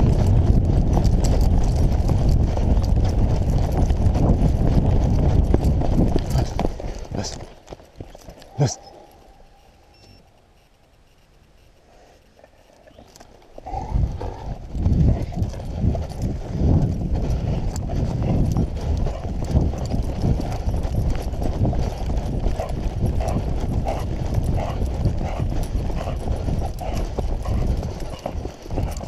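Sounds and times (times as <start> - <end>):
footsteps running on dirt track: 0.0 - 8.8, 13.0 - 29.0.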